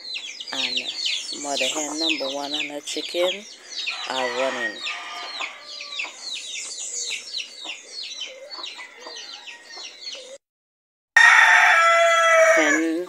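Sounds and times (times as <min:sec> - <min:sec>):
chicks peeping: 0:00.0 - 0:10.4
loud drawn-out chicken call: 0:11.2 - 0:12.9.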